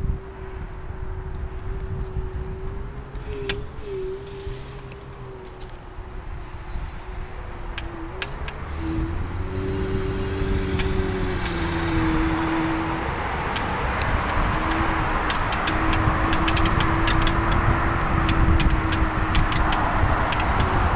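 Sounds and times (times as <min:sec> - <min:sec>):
electric scooter motor whine: 0:00.0 - 0:20.9
wheels rolling noise: 0:00.0 - 0:20.9
sharp ticks from grit: 0:14.3 - 0:20.9.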